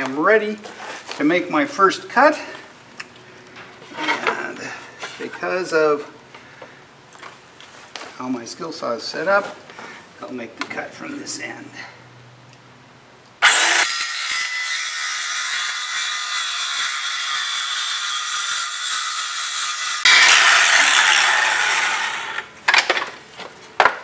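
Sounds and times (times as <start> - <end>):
circular saw cutting wood: 13.4 - 22.5.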